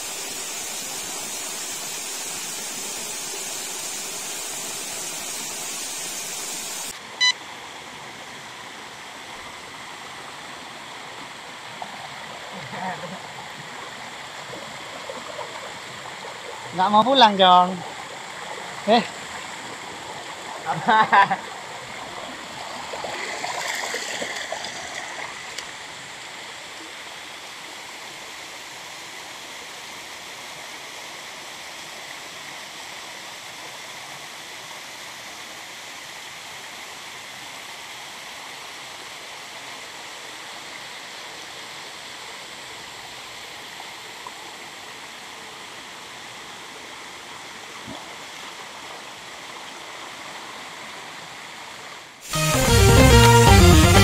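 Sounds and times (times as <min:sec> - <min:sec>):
waterfall rushing over rock: 0:00.0 - 0:15.0.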